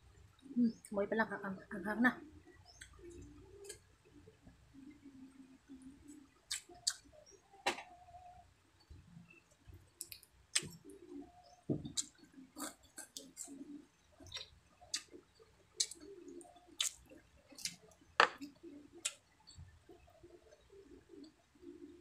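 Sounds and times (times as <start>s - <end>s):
wet clicks and smacks of eating: 2.8s - 3.0s, 6.5s - 7.1s, 10.0s - 10.9s, 11.9s - 13.6s, 14.2s - 15.2s, 15.8s - 19.2s
soft mouth sounds: 11.9s - 15.2s, 15.8s - 17.9s.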